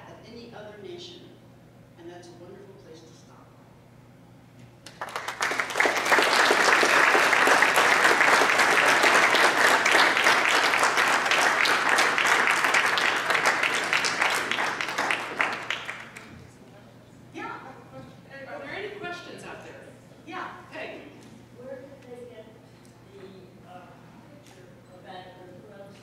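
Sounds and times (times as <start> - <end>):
audience applauding: 4.8 - 16.3.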